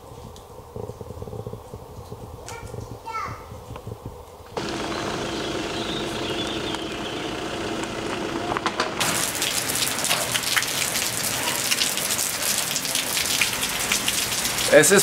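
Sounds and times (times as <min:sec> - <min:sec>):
rain falling steadily: 0:06.6 - 0:15.0.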